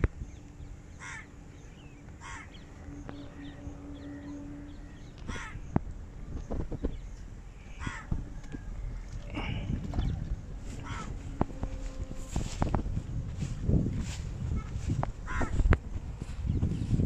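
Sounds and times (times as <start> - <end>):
small birds chirping: 0.0 - 11.4, 14.0 - 17.0
faint steady hum: 0.0 - 17.0
crow cawing: 1.0 - 1.4, 2.2 - 2.6, 5.1 - 5.8, 7.7 - 9.6, 10.7 - 11.8, 15.2 - 15.7.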